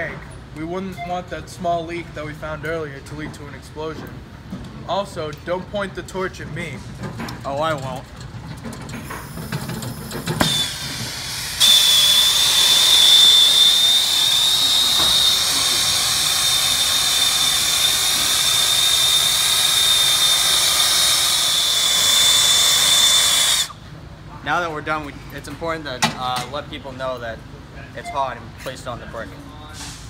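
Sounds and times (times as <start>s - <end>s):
torch hissing and whistling: 9.9s - 23.8s.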